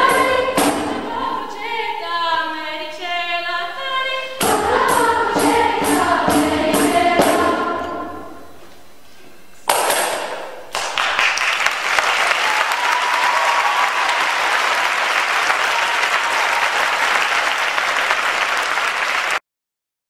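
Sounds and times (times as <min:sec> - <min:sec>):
audience applause: 0:10.7 - 0:19.4.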